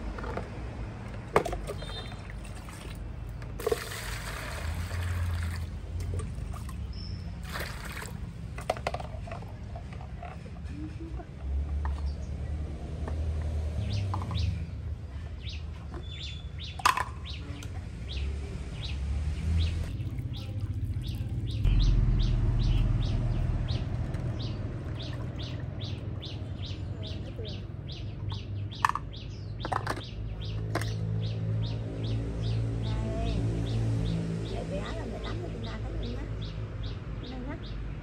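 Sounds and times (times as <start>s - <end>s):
water pouring into plastic basin: 1.5s - 6.8s, 7.4s - 8.4s.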